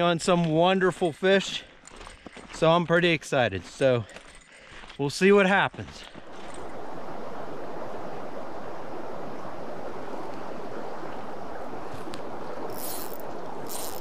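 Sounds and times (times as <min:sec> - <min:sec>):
creek water flowing: 0:03.8 - 0:14.0.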